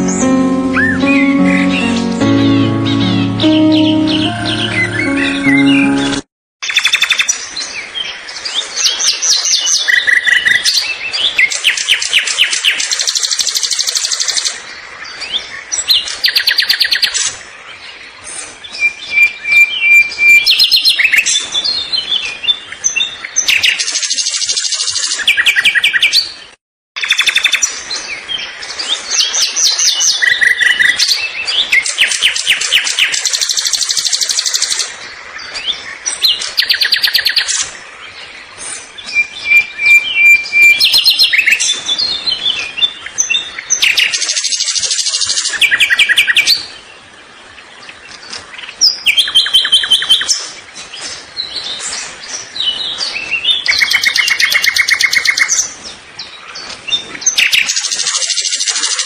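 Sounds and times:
birds singing and chirping: 35.4s - 46.9s, 47.8s - 59.0s.

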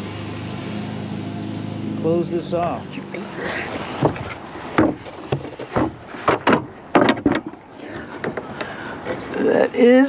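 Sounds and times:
wooden gate knocking and clunking: 3.9s - 8.8s.

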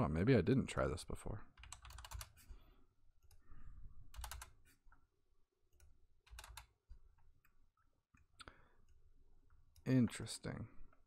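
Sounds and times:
keyboard typing: 1.5s - 2.6s, 4.1s - 4.8s, 5.7s - 7.6s.

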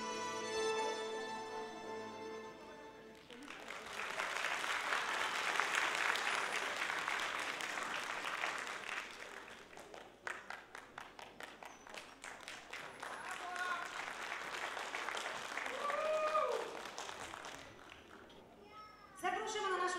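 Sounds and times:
audience applauding: 3.0s - 18.5s.

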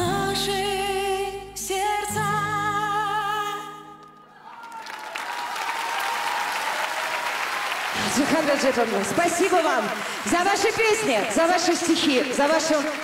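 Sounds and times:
woman singing with vibrato: 0.0s - 4.0s
audience applause: 4.3s - 13.0s.

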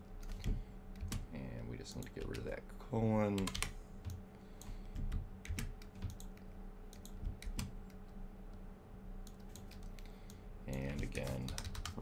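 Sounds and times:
faint steady hum: 0.0s - 12.0s
keyboard typing clicks: 3.4s - 8.0s.

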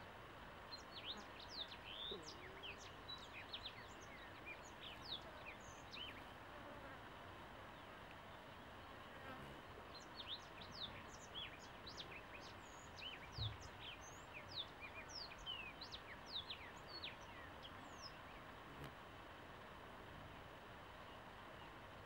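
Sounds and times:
birds chirping: 0.5s - 6.4s, 7.7s - 18.9s
soft low thump: 13.4s - 13.7s.

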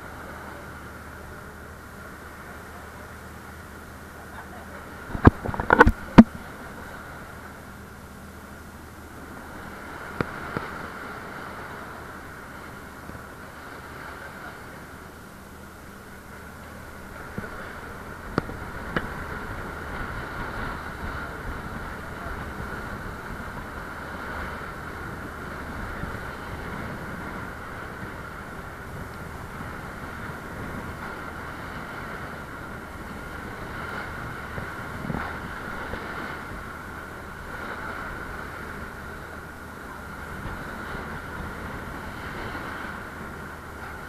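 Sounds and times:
boat engine drone: 0.0s - 44.0s
water rushing along hull: 0.0s - 44.0s
wind buffeting microphone: 0.0s - 44.0s.

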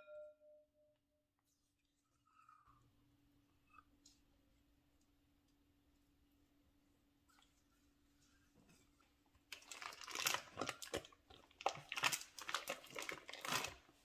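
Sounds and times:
foil wrapper crinkling: 9.5s - 14.0s.

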